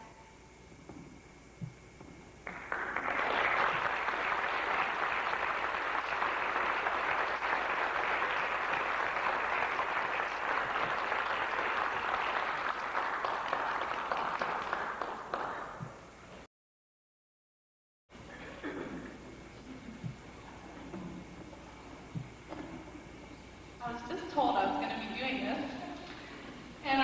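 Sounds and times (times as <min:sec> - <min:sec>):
audience applauding: 0:02.4 - 0:16.0.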